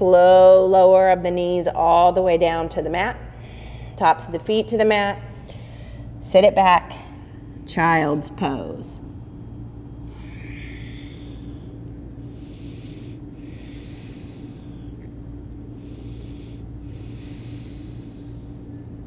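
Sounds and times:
steady low hum: 0.0 - 19.0
woman breathing: 3.2 - 4.3, 5.2 - 6.2, 9.6 - 19.0.

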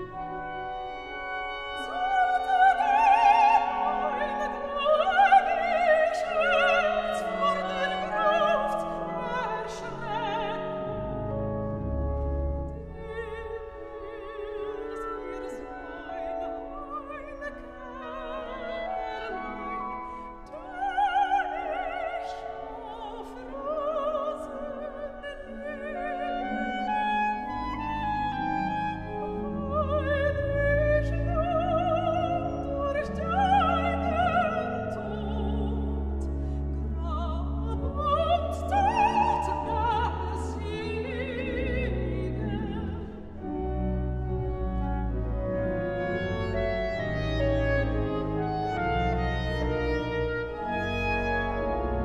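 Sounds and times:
soprano singing with vibrato: 0.0 - 11.1, 12.7 - 43.6
pipe organ: 0.0 - 20.6, 21.4 - 52.0
deep organ pedal notes: 43.4 - 52.0.

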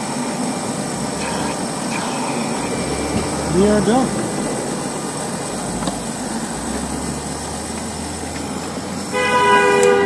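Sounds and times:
electric pump running: 0.0 - 9.1
car horn on two notes: 9.1 - 10.0.

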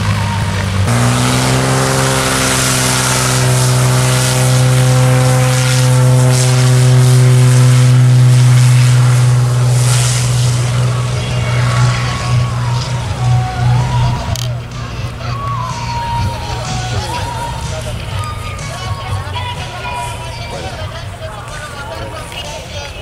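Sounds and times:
propeller airplane engine: 0.0 - 23.0.

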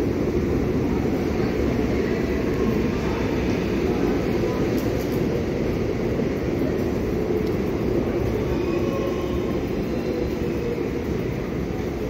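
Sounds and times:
stopped electric train humming: 0.0 - 12.0.

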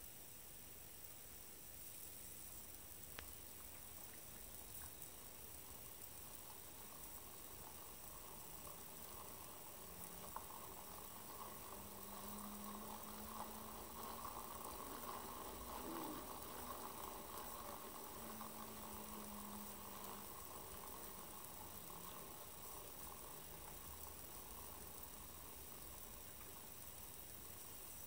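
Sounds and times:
plastic gears whirring: 8.0 - 25.2.

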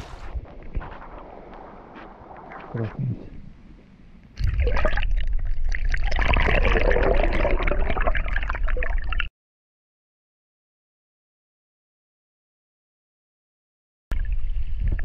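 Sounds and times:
muffled underwater water rush: 0.0 - 9.3, 14.1 - 15.0.

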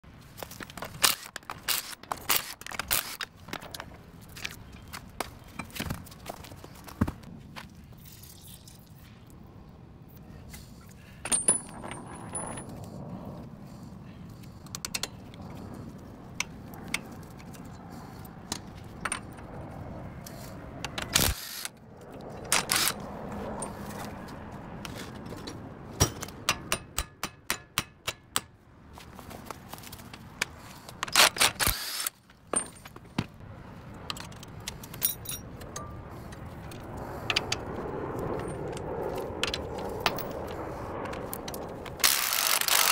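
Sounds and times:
hand tools clanking on metal: 34.2 - 36.0.

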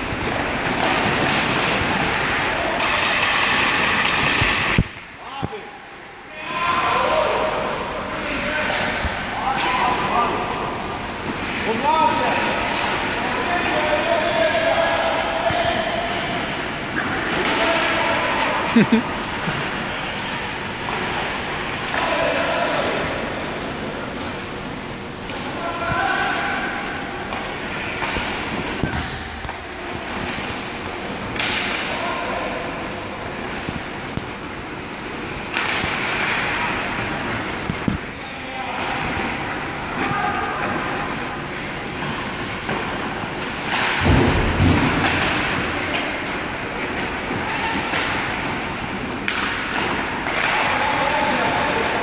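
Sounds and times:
skate blades scraping ice: 0.0 - 4.8, 9.6 - 26.2, 34.8 - 52.0
sticks and pucks clacking: 0.0 - 5.6, 6.9 - 32.6, 33.3 - 52.0.

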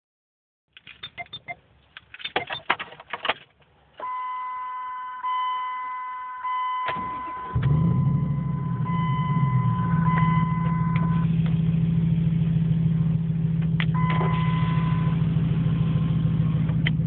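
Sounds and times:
sharp clicks and rattles: 0.7 - 3.7
dashboard warning chime: 4.0 - 11.3, 14.0 - 15.3
loud engine exhaust: 7.4 - 17.0.

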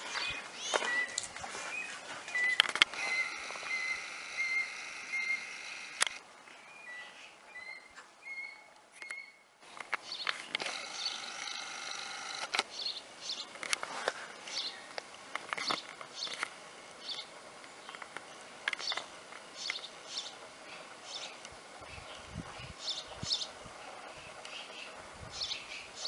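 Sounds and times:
high-pitched chirping animal calls: 2.3 - 6.2, 6.8 - 9.4, 10.7 - 13.0
sharp clicks: 2.5 - 6.2, 9.8 - 12.7.

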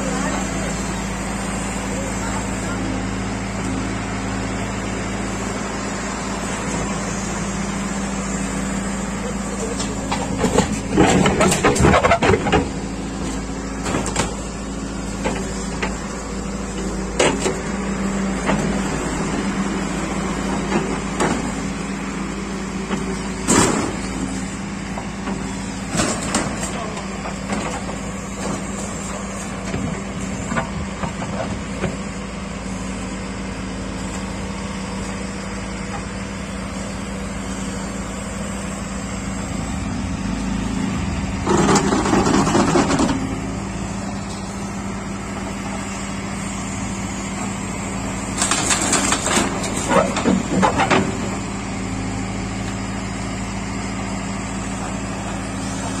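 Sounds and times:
backhoe digging: 0.0 - 56.0
diesel engine running: 0.0 - 56.0.

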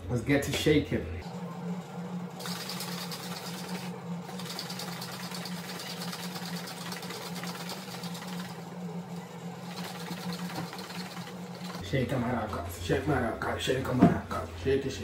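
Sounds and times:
steady low hum: 0.0 - 15.0
liquid sloshing in shaker cup: 9.6 - 11.8.

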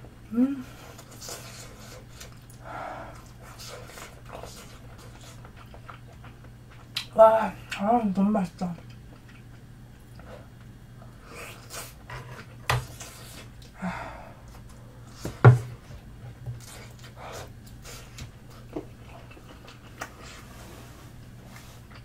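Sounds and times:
low steady hum: 0.0 - 22.0
person chewing: 0.7 - 7.1, 8.8 - 13.8, 16.5 - 20.5, 21.5 - 22.0
person breathing: 2.6 - 3.2, 13.8 - 14.4.

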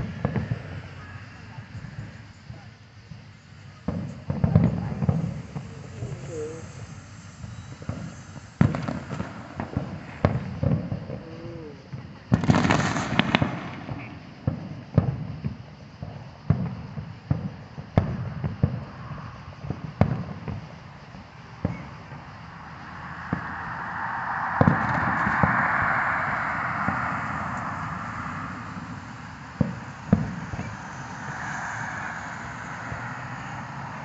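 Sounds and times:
firework booms: 0.0 - 34.0
firework crackling: 0.0 - 34.0
rising rush of noise: 5.3 - 11.1, 20.7 - 34.0.

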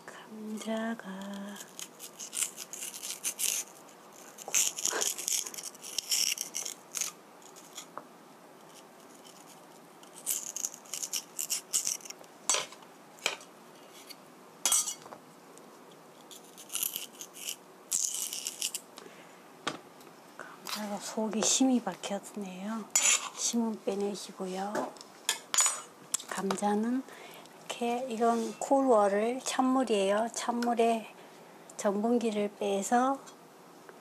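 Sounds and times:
knife scraping and cutting potato: 0.8 - 8.0, 8.6 - 15.0, 16.2 - 18.8, 22.9 - 23.6.

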